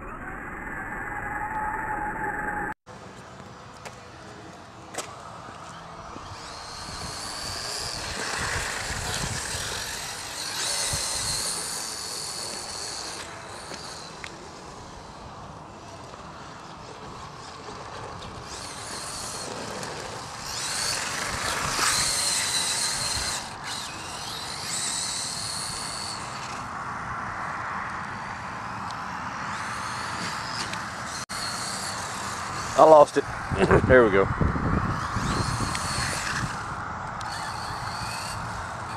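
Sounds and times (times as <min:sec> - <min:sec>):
tyre and wind noise: 0:03.2 - 0:38.9
electric motor whining: 0:05.6 - 0:26.8, 0:29.2 - 0:38.9.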